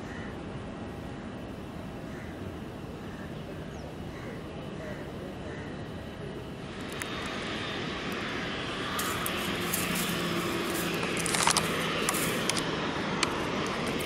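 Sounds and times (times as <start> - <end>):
jet engines rushing: 0.0 - 14.0.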